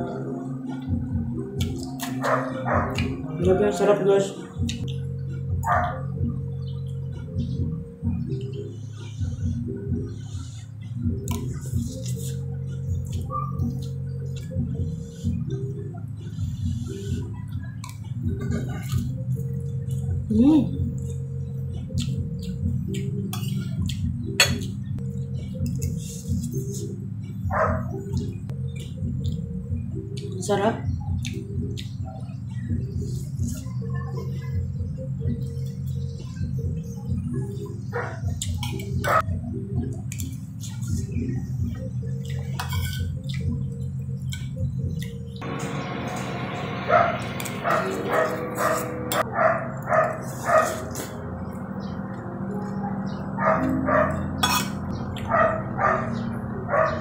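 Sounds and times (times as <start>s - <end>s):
background melody: 0.0s - 40.1s, 41.5s - 57.0s
dog barking: 2.2s - 3.0s, 5.6s - 6.1s, 13.3s - 13.7s, 27.5s - 28.0s, 37.9s - 38.3s, 39.0s - 39.3s, 47.7s - 50.9s, 52.8s - 57.0s
cutlery clicking on a plate: 54.4s - 54.8s.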